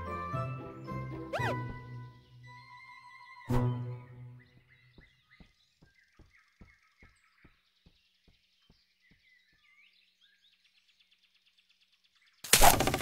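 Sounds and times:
faint bird chirps: 0:01.1 - 0:12.7
soft regular thuds: 0:04.5 - 0:09.8.

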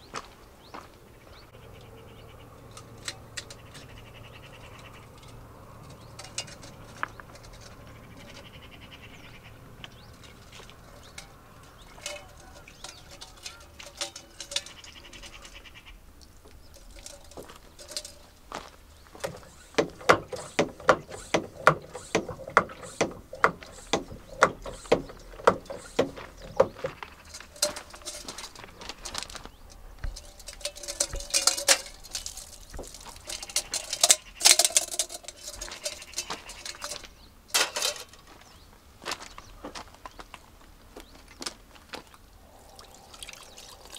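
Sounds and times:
utensils scraping and clinking: 0:02.6 - 0:08.8, 0:10.0 - 0:15.7, 0:16.5 - 0:38.3
quick regular knocks: 0:19.2 - 0:28.6.

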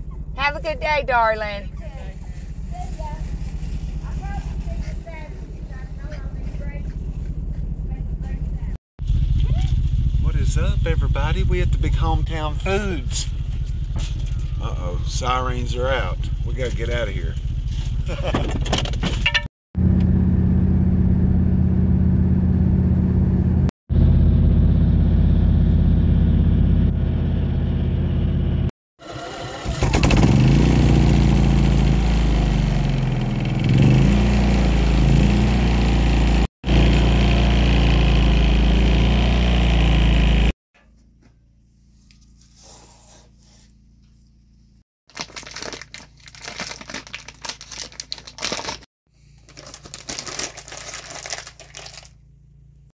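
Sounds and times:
car engine and road noise: 0:00.0 - 0:41.9
packaging crinkling: 0:45.1 - 0:52.2.

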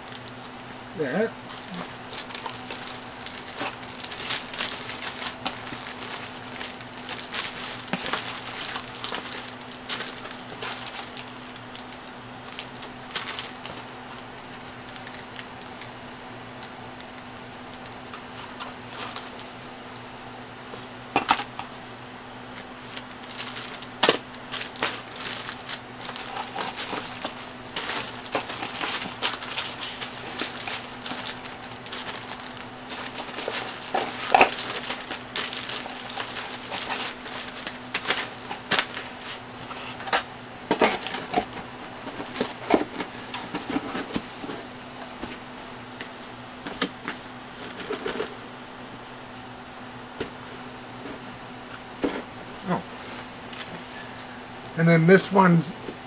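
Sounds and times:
plastic bags crinkling: 0:00.0 - 0:00.8, 0:01.5 - 0:19.7, 0:22.5 - 0:44.4.

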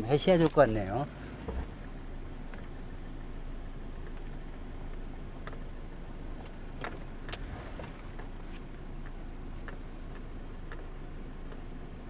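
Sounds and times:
engine and road hum: 0:00.0 - 0:12.0
light ticks: 0:09.0 - 0:11.8.

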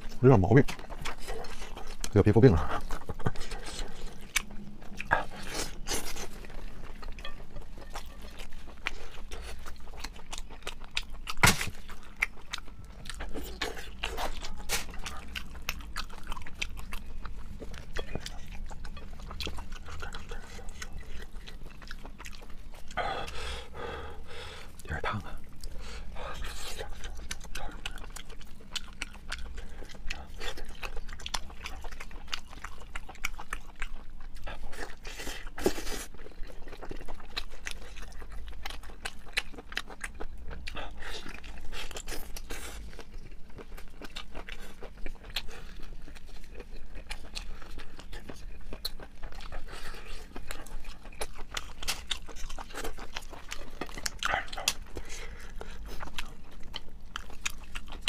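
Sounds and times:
close chewing with mouth clicks: 0:00.0 - 0:58.0
meat tearing: 0:08.2 - 0:17.6.

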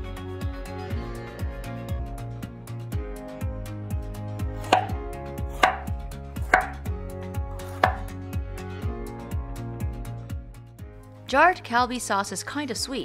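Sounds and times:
background music with steady beat: 0:00.0 - 0:12.2
knife chopping on wooden board: 0:04.6 - 0:06.9, 0:07.6 - 0:08.1.

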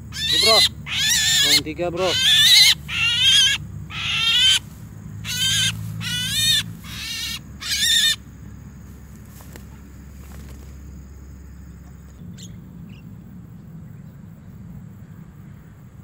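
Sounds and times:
myna squawking: 0:00.1 - 0:08.2.

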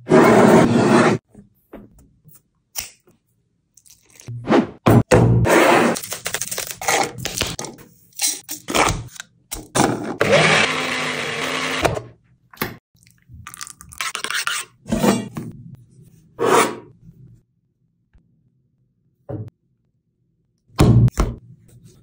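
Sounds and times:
small blender grinding: 0:10.0 - 0:12.1.

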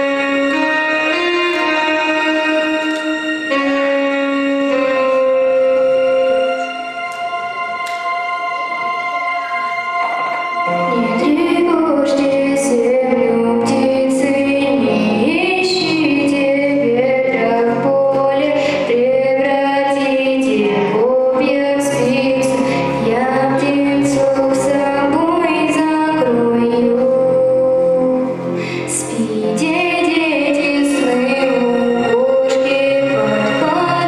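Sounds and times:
instrumental accompaniment: 0:00.0 - 0:34.0
woman singing into microphone: 0:05.0 - 0:34.0.

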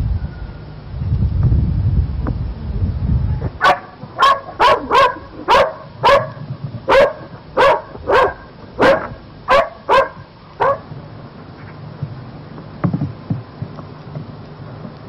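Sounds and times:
wind rumble on microphone: 0:00.0 - 0:09.3, 0:09.9 - 0:15.0
dog barking: 0:03.6 - 0:10.9.

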